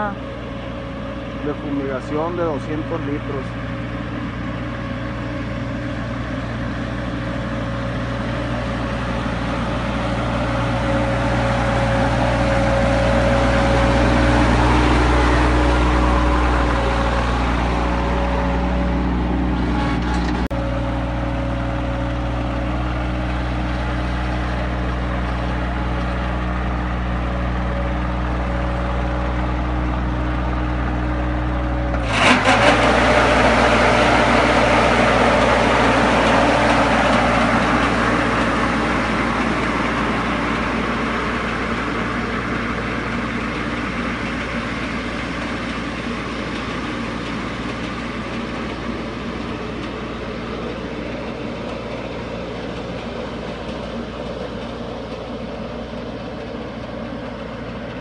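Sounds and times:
tractor diesel engine running: 0.0s - 58.0s
sprayer fan rushing: 31.9s - 55.6s.

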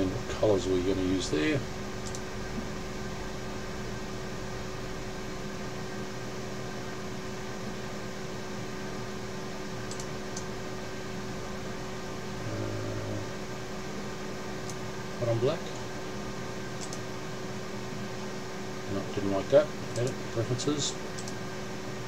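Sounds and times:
low electrical hum: 0.0s - 22.0s
faint clicks: 21.2s - 21.4s.

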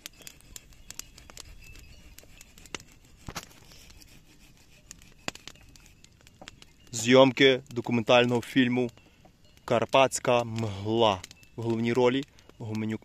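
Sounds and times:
dry twigs snapping: 5.0s - 7.0s.

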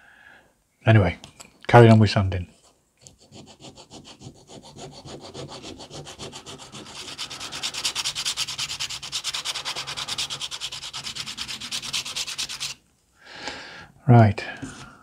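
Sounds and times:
sandpaper scraping wood: 3.2s - 12.8s.

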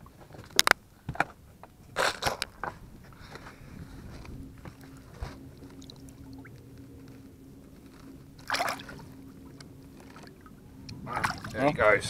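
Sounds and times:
water lapping and trickling: 1.8s - 12.0s
short splash: 8.4s - 9.0s, 11.1s - 11.6s.

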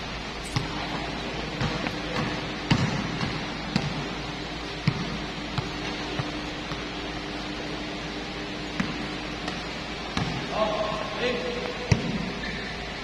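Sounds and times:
basketball bouncing on concrete: 0.5s - 4.2s, 4.8s - 7.0s, 8.7s - 10.5s.

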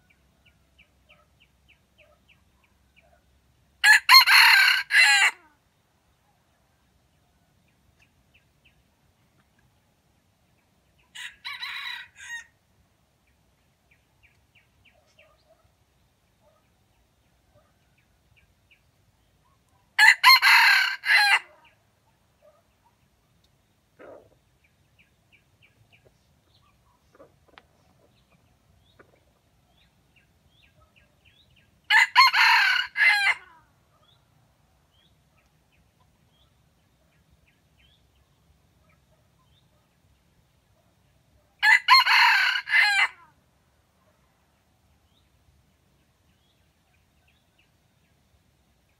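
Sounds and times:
rooster crowing: 3.8s - 5.4s, 11.2s - 12.5s, 20.0s - 21.5s, 31.9s - 33.6s, 41.6s - 43.3s
soft hen clucks: 24.0s - 24.4s, 25.8s - 29.9s.

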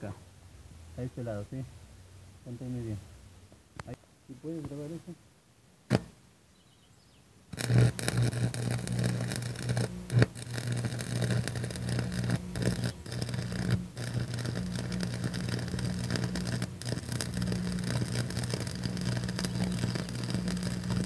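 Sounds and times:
welding arc crackling and hissing: 7.5s - 21.0s
low hum: 7.6s - 21.0s.

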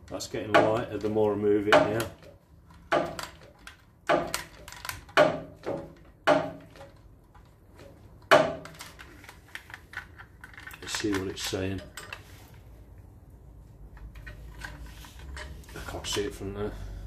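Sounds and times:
metal hub knocking and clunking: 0.0s - 8.8s.

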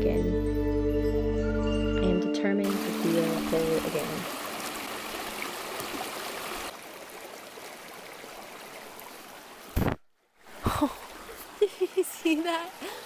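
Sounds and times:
creek water running over rocks: 2.6s - 13.0s.

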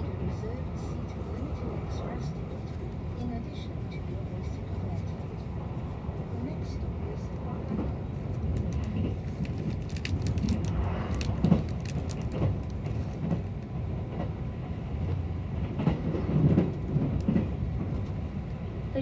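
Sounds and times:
train wheels rumbling on rails: 0.0s - 19.0s
sharp clicks of train wheels: 7.7s - 14.4s, 15.0s - 18.6s.

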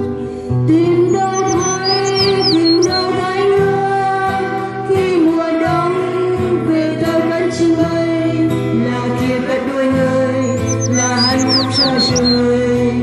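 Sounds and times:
acoustic guitar strumming: 0.0s - 13.0s
woman singing: 0.6s - 13.0s.

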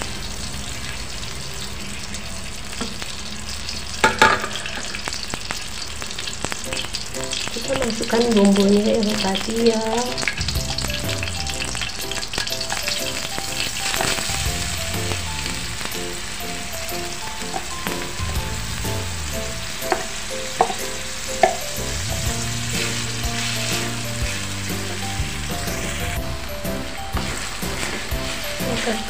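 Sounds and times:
spice paste sizzling in oil: 0.0s - 29.0s
background music: 6.6s - 29.0s
wooden spatula stirring: 22.3s - 29.0s.

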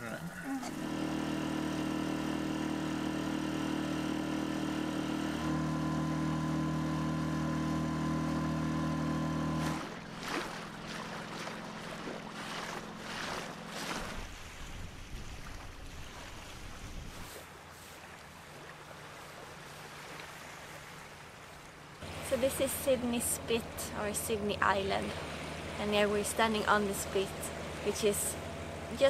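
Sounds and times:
outboard motor running: 0.0s - 29.0s
water noise: 0.0s - 29.0s.

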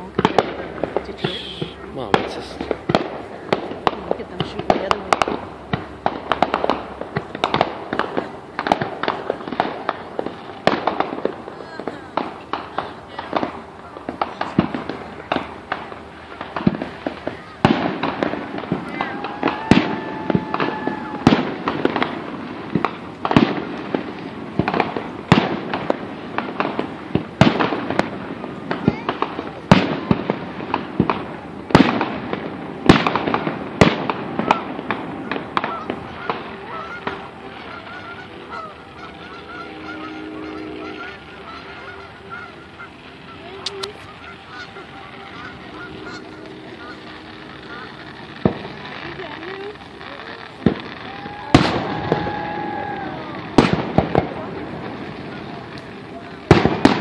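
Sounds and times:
fireworks whistle: 0.0s - 3.7s, 6.0s - 57.0s
fireworks bangs: 0.0s - 57.0s
fireworks crackles: 0.0s - 57.0s
geese honking: 33.2s - 53.4s.

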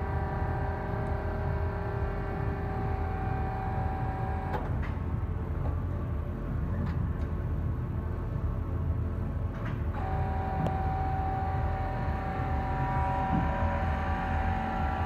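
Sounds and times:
lathe motor whine: 0.0s - 4.8s, 9.9s - 15.0s
low machine hum: 0.0s - 15.0s.

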